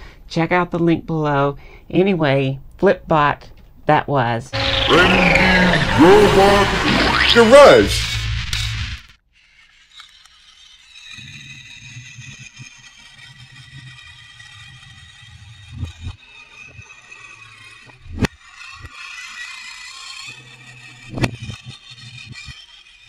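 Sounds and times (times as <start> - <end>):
toy robot motor whirring: 9.3 - 23.0.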